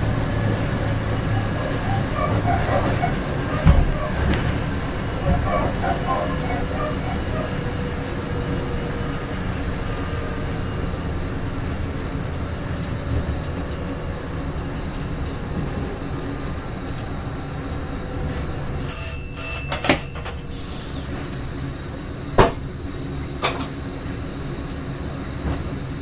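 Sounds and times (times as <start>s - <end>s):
train rumbling on track: 0.0s - 26.0s
sharp knocks: 3.0s - 4.5s.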